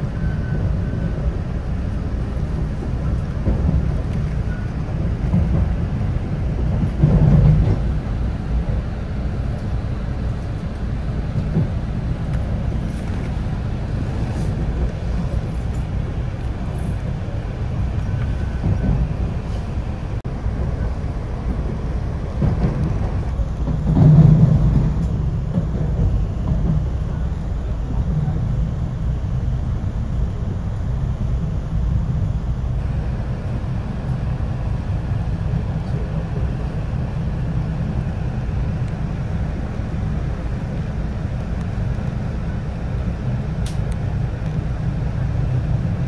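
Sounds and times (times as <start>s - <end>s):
train rumbling on rails: 0.0s - 46.0s.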